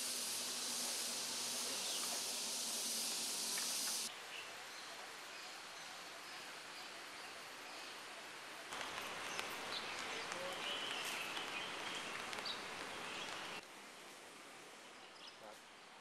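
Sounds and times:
steady high hiss: 0:00.0 - 0:16.0
faint bird chirps: 0:08.8 - 0:13.6.

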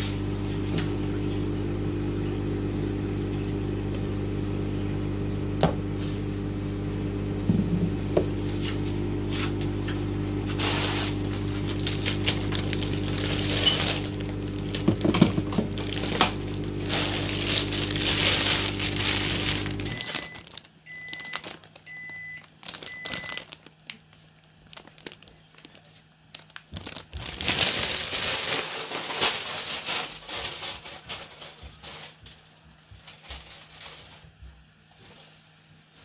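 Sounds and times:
blender motor humming: 0:00.0 - 0:21.2
plastic bag crinkling: 0:10.5 - 0:32.3, 0:33.0 - 0:34.4.

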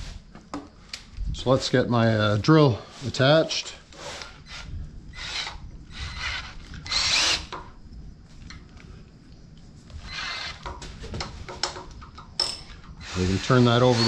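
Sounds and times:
drill and chuck bursts: 0:03.9 - 0:07.6, 0:10.0 - 0:10.7, 0:13.0 - 0:14.0
light clicks and knocks: 0:10.6 - 0:12.8.

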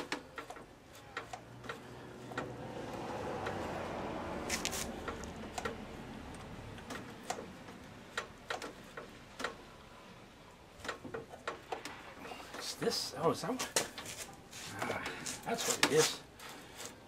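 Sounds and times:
metallic clicks of engine linkage: 0:00.0 - 0:03.7, 0:04.5 - 0:09.9, 0:10.7 - 0:12.7.

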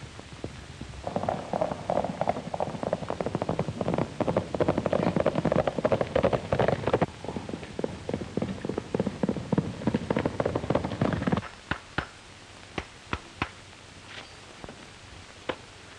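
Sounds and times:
film soundtrack hiss: 0:00.0 - 0:15.9
horse hoofbeats on dirt road: 0:00.2 - 0:12.1.

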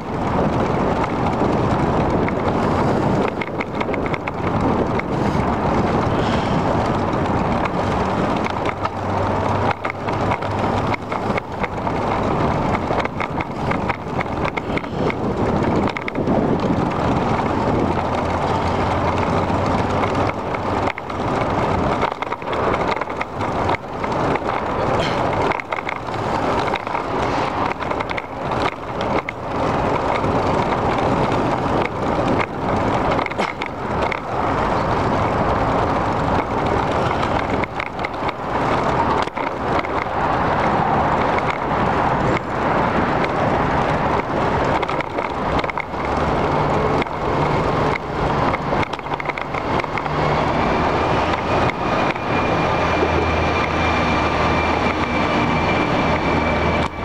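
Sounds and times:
bicycle rattling knocks: 0:00.0 - 0:52.2
bicycle tyre and wind rumble: 0:00.0 - 0:57.0.

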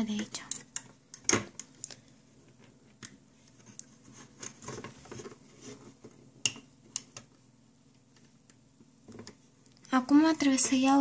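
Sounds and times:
rubber bands rustling: 0:00.8 - 0:07.3.

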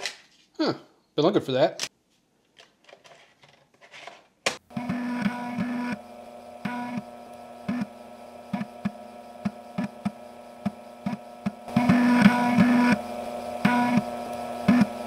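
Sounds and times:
floppy drive head clicking and buzzing: 0:04.5 - 0:15.0
steady drive hum: 0:04.6 - 0:15.0.

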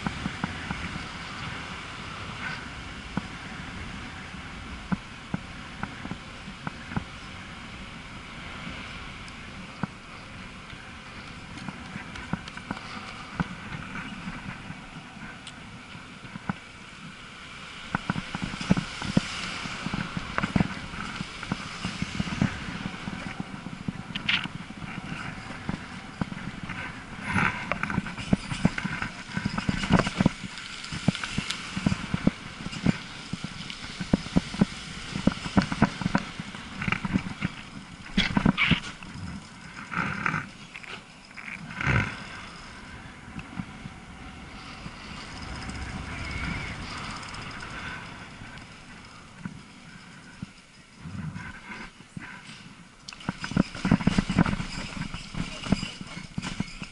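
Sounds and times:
e-bike riding rumble: 0:00.0 - 0:56.9
knocks and rattles: 0:53.2 - 0:56.9.

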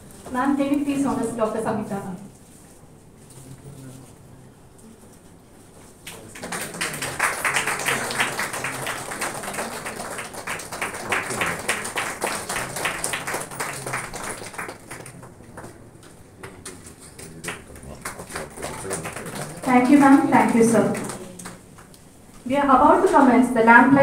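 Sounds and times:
audience applauding: 0:06.1 - 0:21.9.

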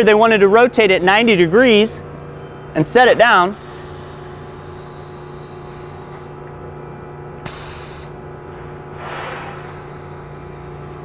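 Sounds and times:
steady low hum: 0:00.0 - 0:11.0
compressed air hissing: 0:03.5 - 0:06.3, 0:07.4 - 0:08.2, 0:08.9 - 0:11.0
short burst of air: 0:07.4 - 0:08.2, 0:08.9 - 0:11.0.

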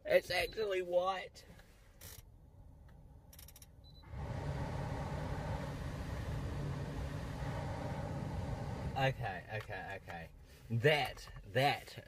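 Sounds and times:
heater blower fan: 0:04.0 - 0:09.4.

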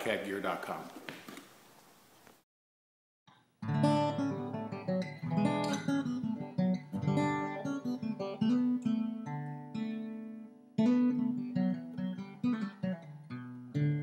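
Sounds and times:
acoustic guitar music: 0:03.6 - 0:14.0.

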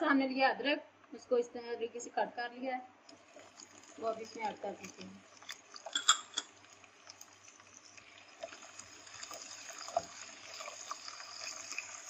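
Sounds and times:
garlic sizzling in hot oil: 0:03.2 - 0:12.0.

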